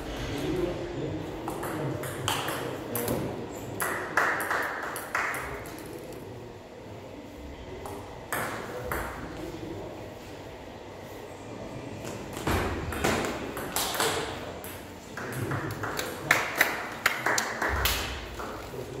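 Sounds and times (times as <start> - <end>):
table tennis ball hits: 12.4 - 15.9.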